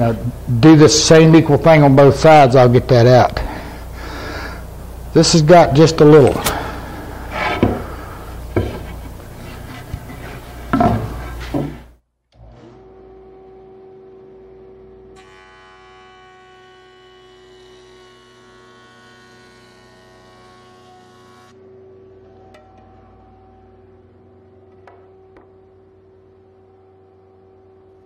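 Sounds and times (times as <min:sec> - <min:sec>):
jointer humming: 0:00.0 - 0:11.9
high whine of board cutting: 0:00.0 - 0:28.0
wood boards knocking on workbench: 0:07.4 - 0:07.9, 0:08.5 - 0:09.1, 0:10.7 - 0:11.9.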